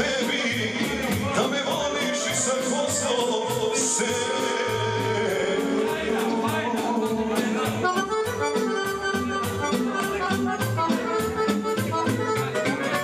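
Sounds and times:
accordion playing quick runs: 0:02.1 - 0:13.0
steady beat and pulsing bass: 0:04.9 - 0:12.2.

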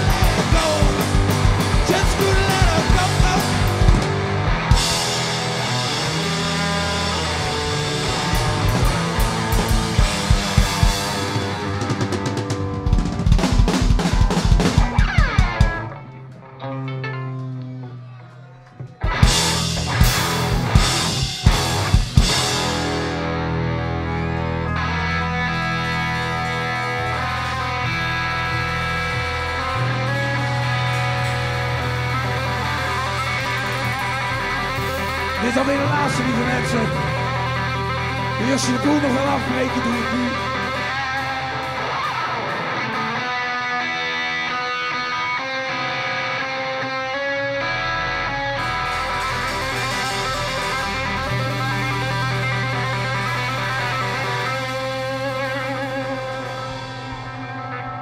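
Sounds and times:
person's voice: 0:00.0 - 0:04.0, 0:35.0 - 0:41.0
drum kit: 0:00.0 - 0:16.4, 0:18.8 - 0:44.0, 0:48.4 - 0:58.0
bass guitar: 0:00.0 - 0:58.0
electric guitar: 0:00.0 - 0:58.0.

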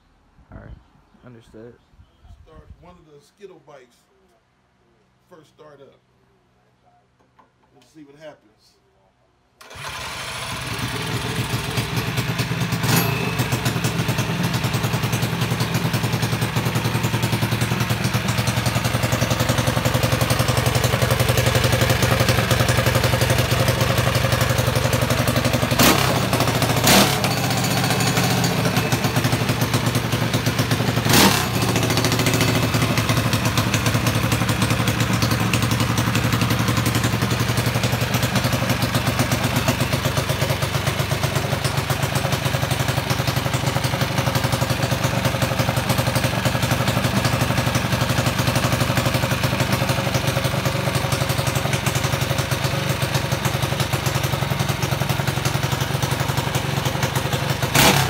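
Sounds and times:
starter box spinning engine: 0:09.6 - 0:15.6
mini-bike engine running: 0:09.6 - 0:58.0.

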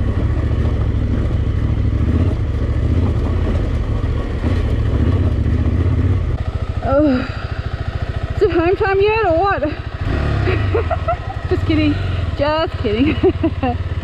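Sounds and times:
motorcycle engine chugging: 0:00.0 - 0:14.0.

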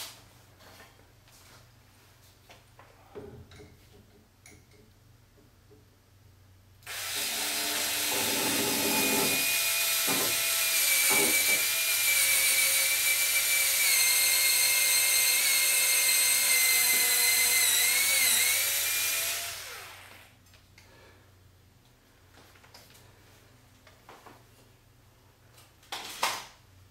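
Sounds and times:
cordless drill drilling: 0:06.8 - 0:20.3.

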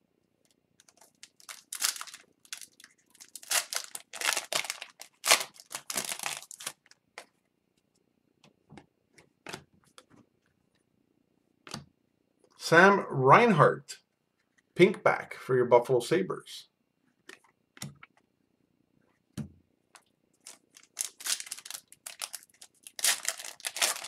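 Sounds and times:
foil wrapper tearing and crinkling: 0:00.8 - 0:07.0, 0:20.4 - 0:24.0.

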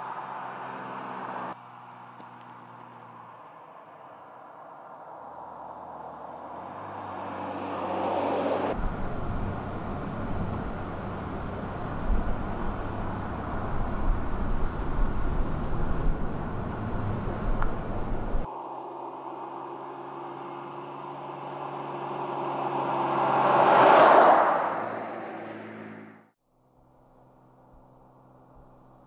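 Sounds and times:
road noise: 0:00.0 - 0:29.0
pickup engine accelerating: 0:05.3 - 0:26.3.

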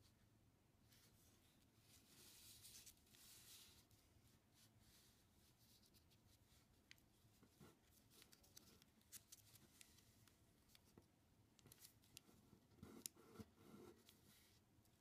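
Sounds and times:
paper rustling while folded: 0:07.7 - 0:10.8.

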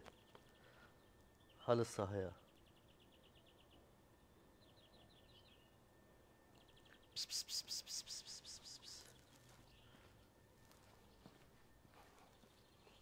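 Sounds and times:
small birds chirping: 0:00.0 - 0:05.8, 0:06.5 - 0:13.0
rapid hissing pulses: 0:07.2 - 0:09.1.

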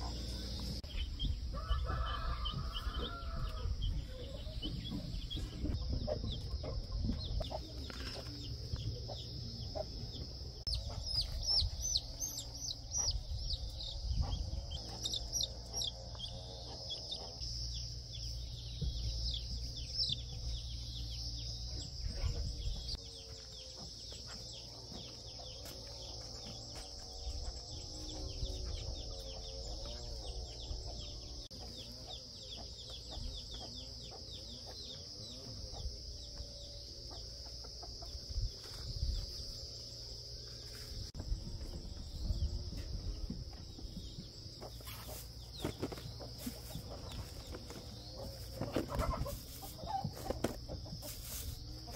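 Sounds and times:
hens clucking: 0:44.6 - 0:51.9.

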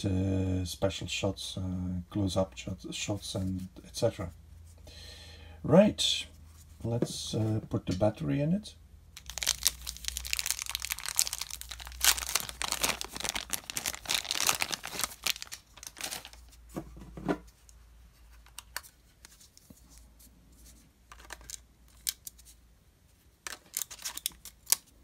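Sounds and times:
plastic bag crinkling and tearing: 0:09.2 - 0:16.6.

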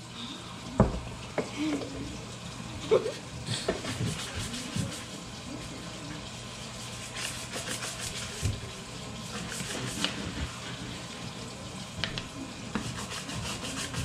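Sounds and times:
tap water splashing: 0:00.8 - 0:02.0, 0:03.5 - 0:05.0, 0:08.3 - 0:08.7, 0:12.0 - 0:13.0.

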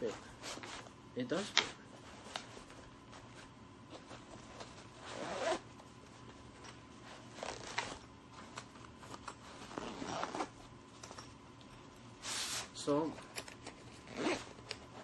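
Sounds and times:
fabric rustling: 0:02.0 - 0:10.7
zipper being pulled closed: 0:04.4 - 0:05.6, 0:07.3 - 0:08.0, 0:09.6 - 0:10.6, 0:14.0 - 0:15.0.

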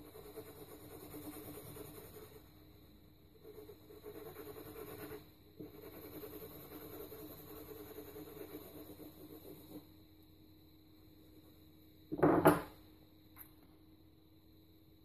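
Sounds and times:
pencil shading on paper: 0:00.0 - 0:09.9.

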